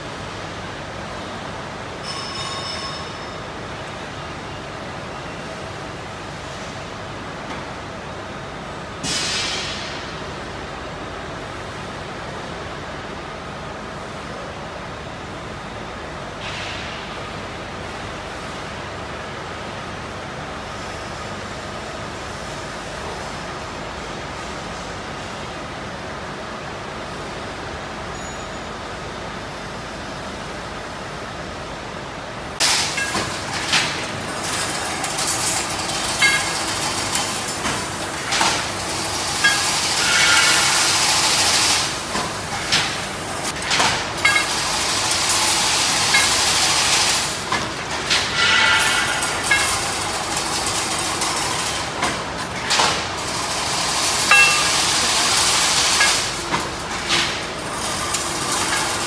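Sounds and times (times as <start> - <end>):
machine metallic clattering: 32.6 - 59.0.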